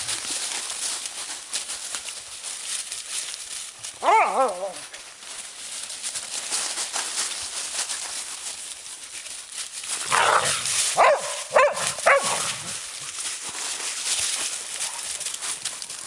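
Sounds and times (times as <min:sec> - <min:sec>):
leaves crackling underfoot: 0:00.0 - 0:16.0
dog call: 0:04.0 - 0:05.0, 0:10.1 - 0:12.8.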